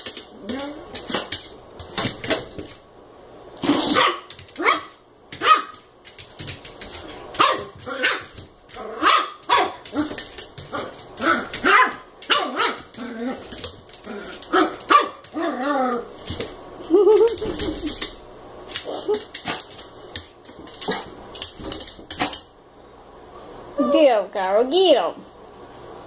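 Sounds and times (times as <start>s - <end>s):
small dog barking: 3.6s - 5.8s, 7.4s - 10.1s, 10.7s - 12.9s, 14.5s - 15.6s.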